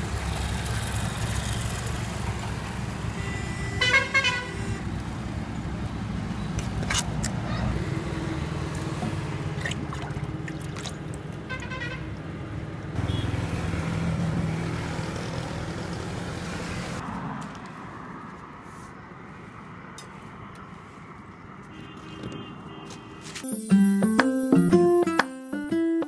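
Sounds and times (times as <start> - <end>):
high tonal chirp: 23.4 - 26.0.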